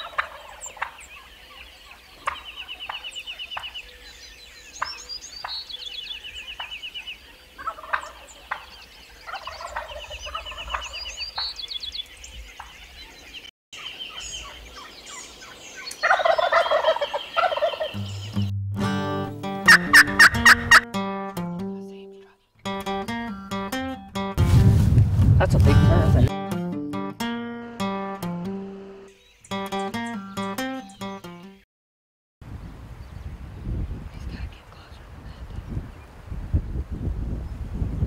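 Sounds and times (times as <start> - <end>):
turkeys gobbling: 0.0 - 3.8, 6.6 - 11.5, 14.1 - 18.3, 19.6 - 20.9
birds trilling: 0.0 - 18.5, 19.4 - 20.9
acoustic guitar music: 17.9 - 31.6.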